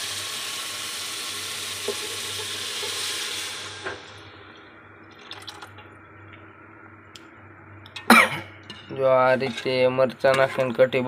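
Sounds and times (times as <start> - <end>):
chillies sizzling in hot oil: 0.0 - 3.9
liquid poured into pot: 5.1 - 5.8.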